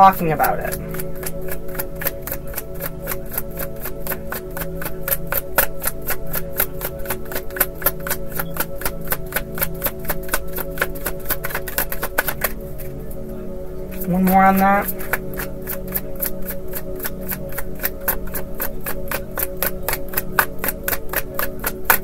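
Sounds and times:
soft background music: 0.0 - 22.0
cards being shuffled: 0.4 - 12.9.

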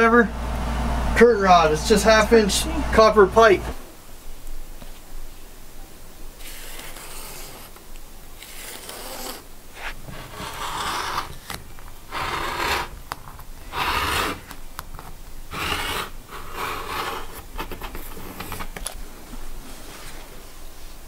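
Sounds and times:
rotary cutter slicing fabric: 6.4 - 7.8, 8.4 - 14.6, 15.5 - 17.5
ruler scraping over fabric: 6.4 - 7.8, 8.4 - 13.0, 13.7 - 14.5, 15.5 - 18.7.

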